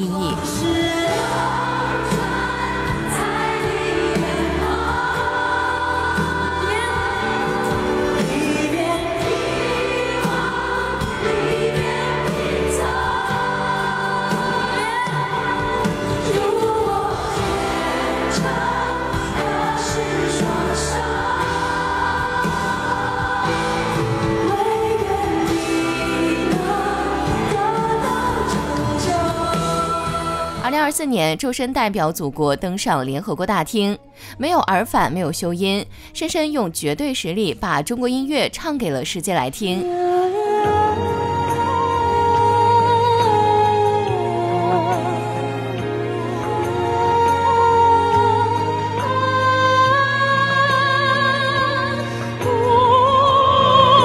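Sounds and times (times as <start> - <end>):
audience singing along: 1.0 - 30.6.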